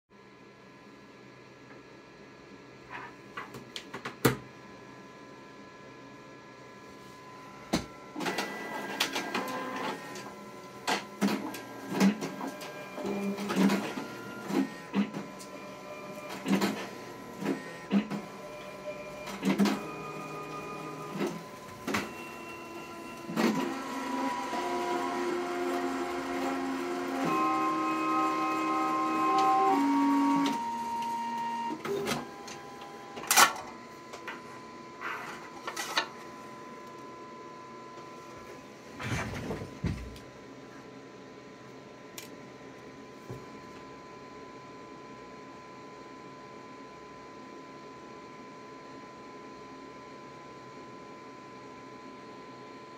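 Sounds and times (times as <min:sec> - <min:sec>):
printer motors whining: 0:07.2 - 0:40.1.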